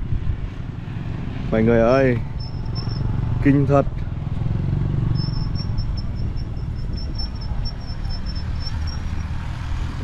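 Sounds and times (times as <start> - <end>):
vehicle engines rumbling: 0.0 - 10.0
thin high-pitched whine: 5.1 - 9.3.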